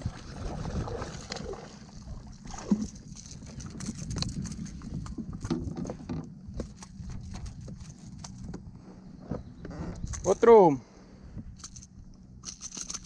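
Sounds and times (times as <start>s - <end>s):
fishing reel clicks and knocks: 11.6s - 13.0s.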